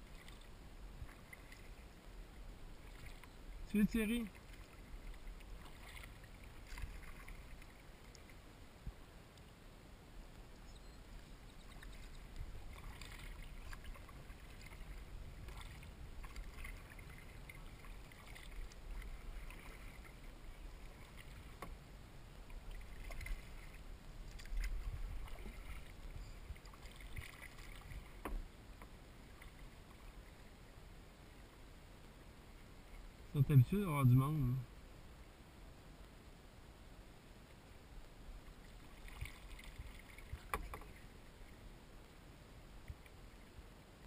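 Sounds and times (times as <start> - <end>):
paddle splashing water: 0.0 - 8.8, 10.2 - 31.6, 38.3 - 41.7.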